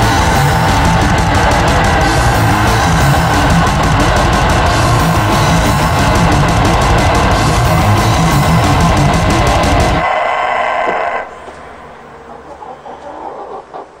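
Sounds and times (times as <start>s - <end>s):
death metal music: 0.0s - 12.3s
hens clucking: 8.8s - 14.0s
rooster crowing: 9.5s - 13.7s.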